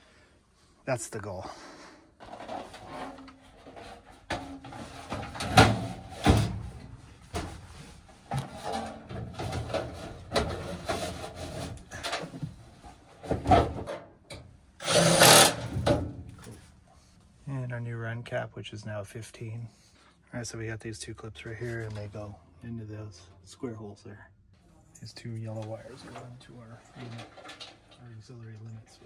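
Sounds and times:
metal knocks and scrapes: 0:02.2 - 0:14.0
rasping metal slide: 0:14.8 - 0:15.7.

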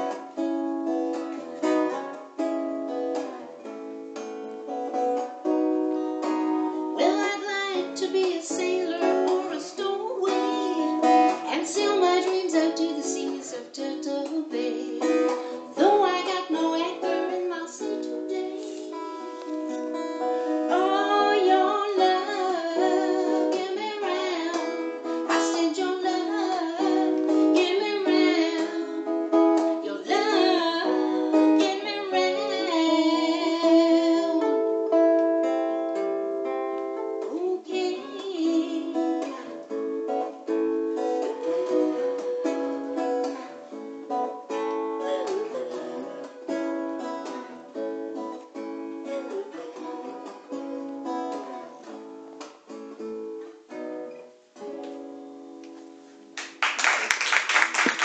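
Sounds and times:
acoustic guitar picked and strummed: 0:00.0 - 0:56.6
woman singing: 0:06.8 - 0:19.5, 0:20.4 - 0:35.0, 0:37.2 - 0:47.7.

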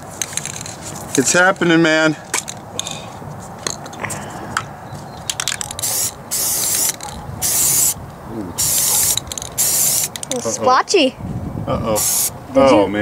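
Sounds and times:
aerosol spray can hissing: 0:05.7 - 0:08.0, 0:08.6 - 0:10.2, 0:12.0 - 0:12.4.

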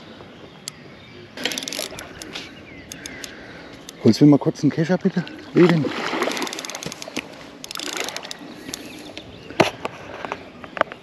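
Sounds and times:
fishing reel clicking: 0:01.4 - 0:04.0, 0:06.2 - 0:09.0.

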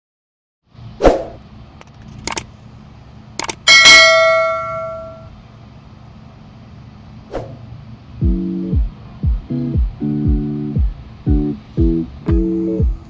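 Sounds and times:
bell ding: 0:03.7 - 0:05.3.

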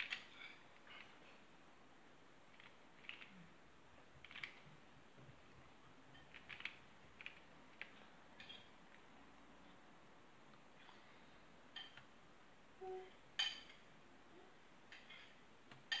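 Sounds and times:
plastic puzzle clicks: 0:02.5 - 0:03.3, 0:04.2 - 0:04.6, 0:06.3 - 0:08.0.

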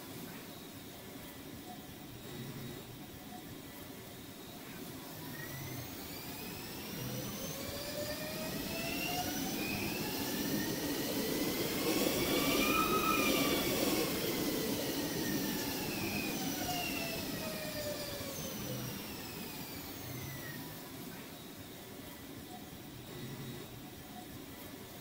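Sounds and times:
electric train traction whine: 0:05.0 - 0:21.6
train wheels rumbling: 0:07.1 - 0:18.7.

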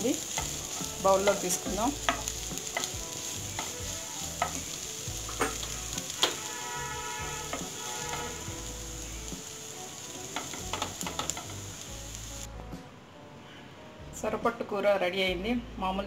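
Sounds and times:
light sizzle: 0:00.0 - 0:12.8
spatula scraping frying pan: 0:00.3 - 0:08.7.

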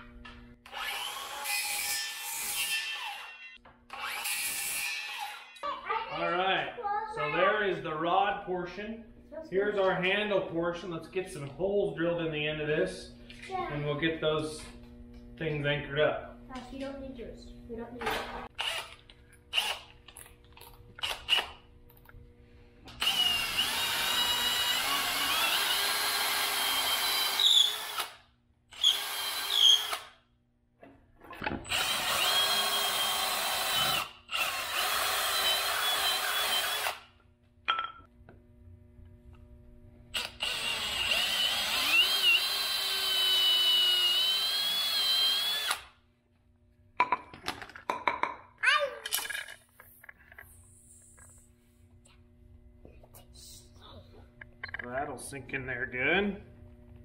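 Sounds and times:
cordless drill boring into wood: 0:00.6 - 0:02.2, 0:02.8 - 0:05.6, 0:18.6 - 0:19.9, 0:23.0 - 0:30.2, 0:31.6 - 0:37.1, 0:40.2 - 0:46.0
tool handling clicks and knocks: 0:49.0 - 0:50.4.

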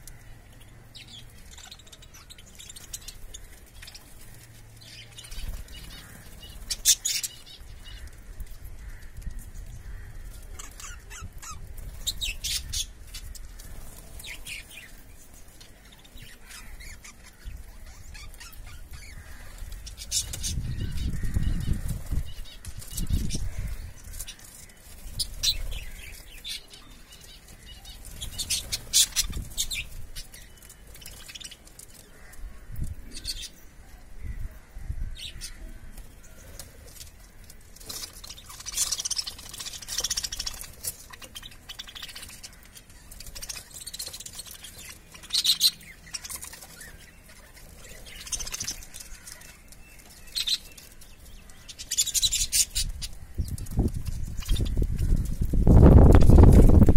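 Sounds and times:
wings flapping: 0:51.9 - 0:56.9.

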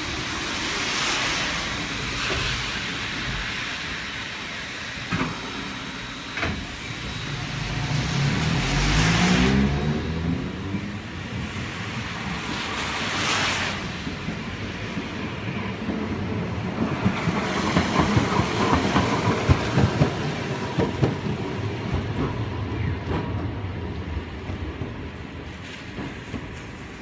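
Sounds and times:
car tyres hissing on wet road: 0:00.0 - 0:05.0, 0:06.9 - 0:10.6, 0:11.2 - 0:14.6
streetcar wheels rattling on rails: 0:00.0 - 0:27.0.

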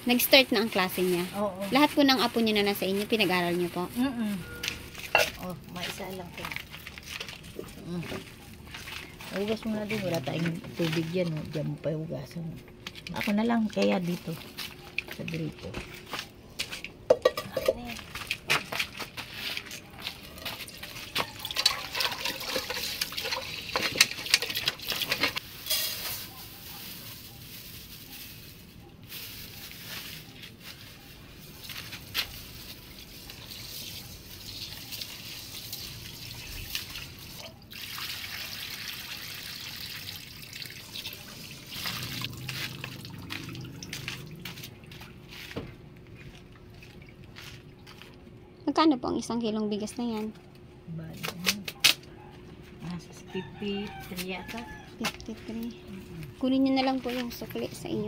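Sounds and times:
knocks against metal pot: 0:17.1 - 0:17.9.

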